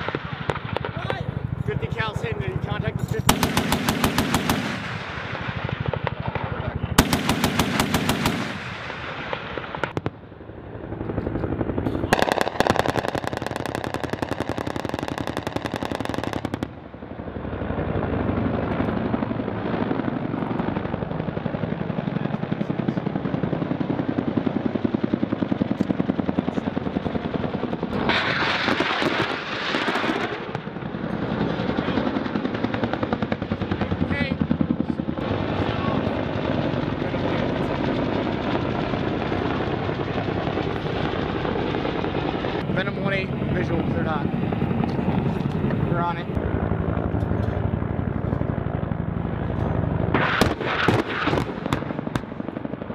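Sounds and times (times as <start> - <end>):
automatic gunfire bursts: 3.3 - 6.0, 7.0 - 9.1.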